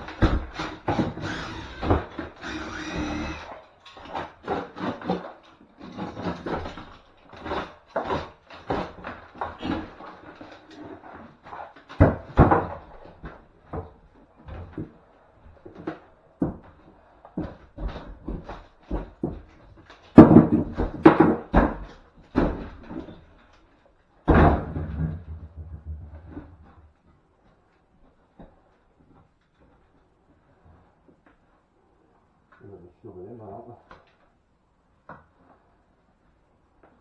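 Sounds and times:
wooden boards being pried off: 0.0s - 14.9s, 17.4s - 23.3s.

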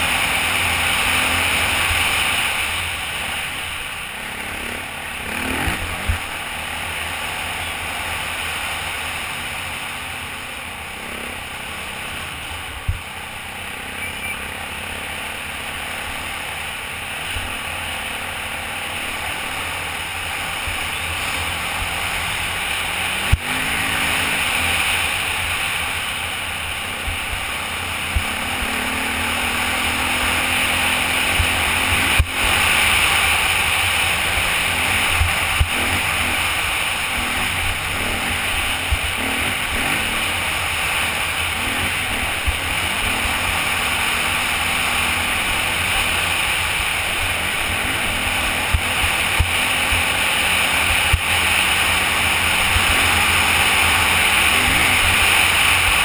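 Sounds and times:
off-road motorcycle engine: 0.0s - 56.0s.

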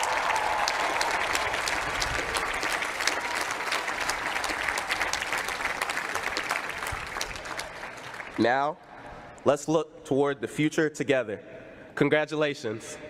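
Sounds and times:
crowd applauding: 0.0s - 8.5s.

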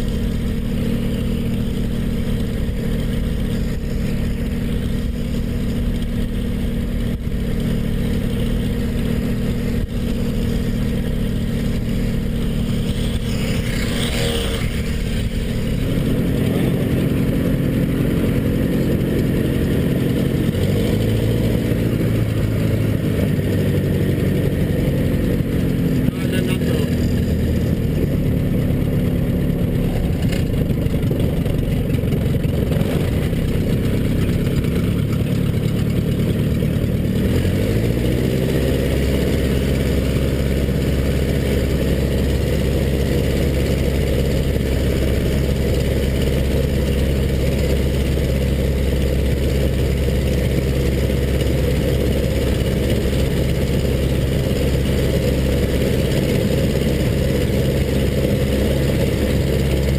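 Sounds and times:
aircraft piston engine running: 0.0s - 59.9s.

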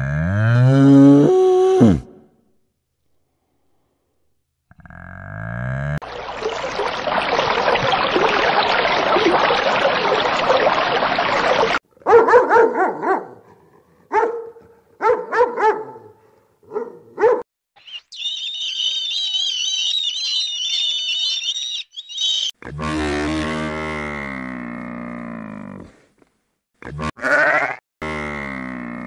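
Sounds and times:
rushing underwater noise: 6.0s - 11.8s
dog barking: 12.0s - 17.5s
seabirds calling: 17.8s - 22.6s.

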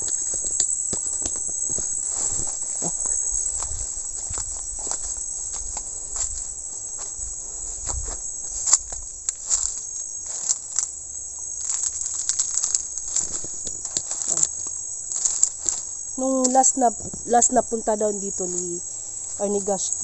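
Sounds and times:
footsteps through undergrowth: 0.0s - 20.0s
high-pitched insect chorus: 0.0s - 20.0s.

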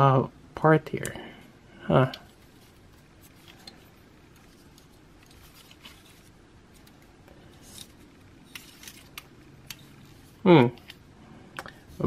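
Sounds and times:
plastic parts rubbing: 2.2s - 11.0s.

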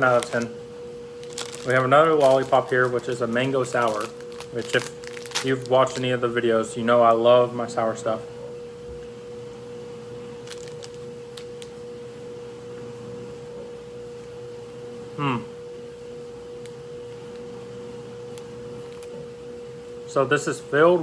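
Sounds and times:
household appliance humming: 0.0s - 21.0s
person humming: 15.2s - 15.5s.

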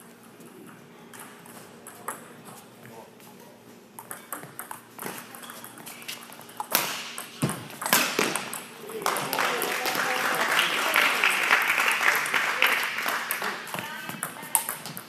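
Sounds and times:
rackets hitting shuttlecock: 6.5s - 9.0s.

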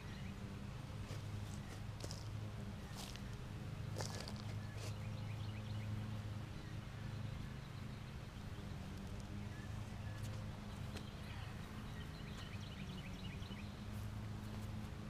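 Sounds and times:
birds chirping: 0.0s - 15.0s
steady low hum: 0.0s - 15.0s
hand rustling soil: 2.9s - 5.0s.

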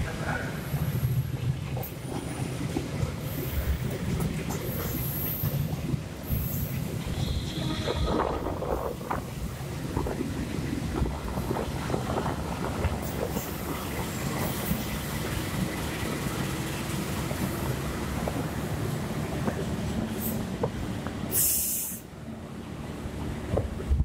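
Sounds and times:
train wheels rumbling on rail: 0.0s - 24.0s
short loud hiss: 21.3s - 22.0s.

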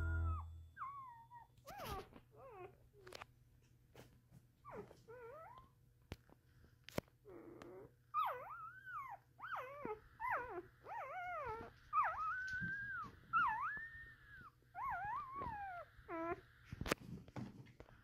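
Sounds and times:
puppy crying in high whines: 0.3s - 2.7s, 7.3s - 16.4s.

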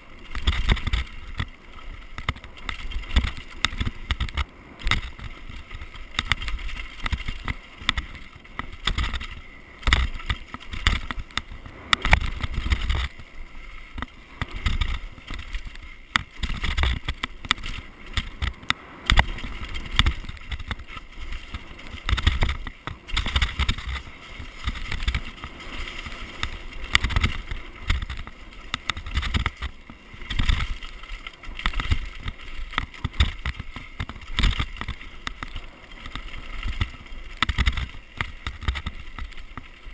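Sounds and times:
bike rattling over bumps: 0.0s - 39.9s
bike tyres on dirt trail: 0.0s - 39.9s.

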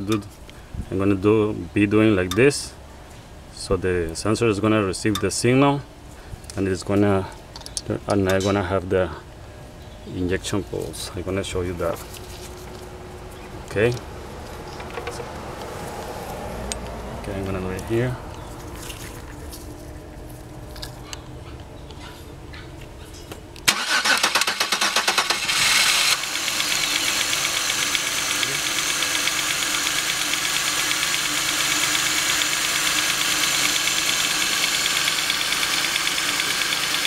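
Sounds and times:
car engine cranking and starting: 23.6s - 37.0s
car engine running: 25.1s - 37.0s.

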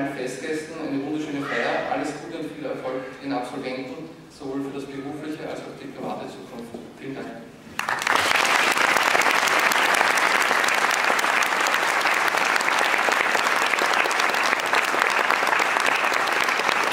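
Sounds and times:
audience applauding: 7.8s - 16.9s.

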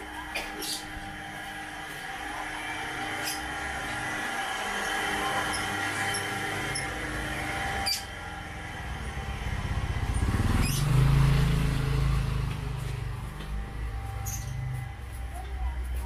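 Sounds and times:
motorcycle engine passing by: 4.0s - 15.0s.

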